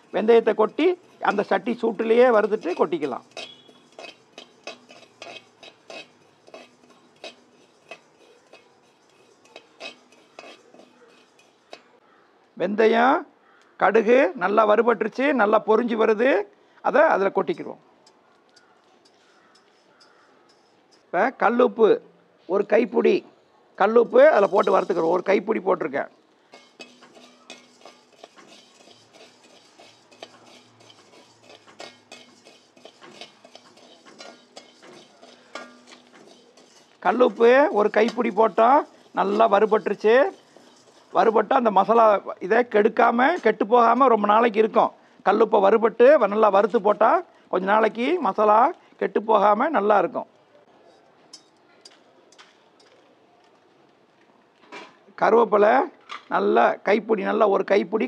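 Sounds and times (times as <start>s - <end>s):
metal spatula scraping metal pan: 0.0s - 12.0s, 18.6s - 21.1s, 23.9s - 25.8s, 26.4s - 44.8s.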